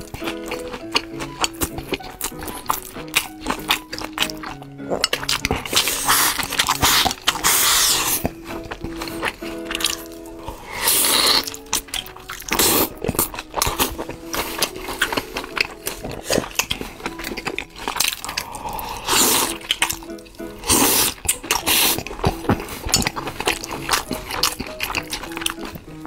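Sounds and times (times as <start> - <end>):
background music: 0.0 - 26.0
wet chewing and mouth smacks: 0.0 - 26.0.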